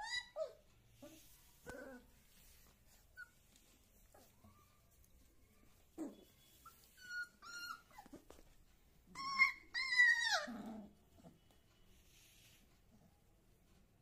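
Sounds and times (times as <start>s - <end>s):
puppies high-pitched cries: 0.0s - 0.7s, 5.6s - 8.3s, 9.1s - 10.8s
puppies whimpering: 0.0s - 8.5s, 9.1s - 10.9s.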